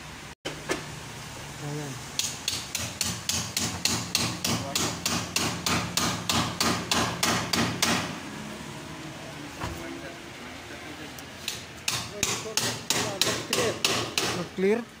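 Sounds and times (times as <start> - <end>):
hard knocks on window glass: 2.4 - 8.2, 11.5 - 14.5.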